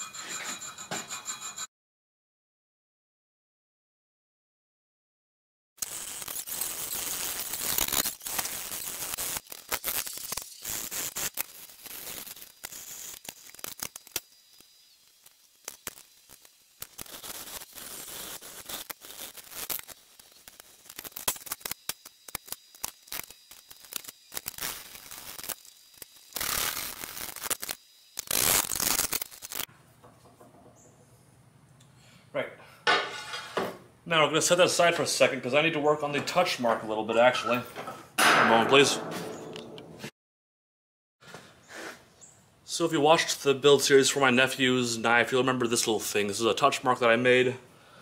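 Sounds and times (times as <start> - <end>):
hand file scraping steel: 0.0 - 1.7.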